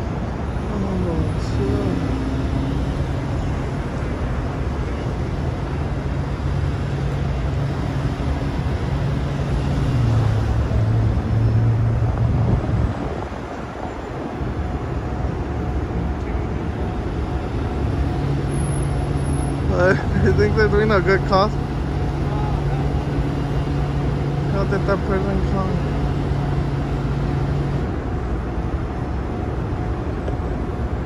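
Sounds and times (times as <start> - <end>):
vehicle engine hum and road noise: 0.0 - 31.0.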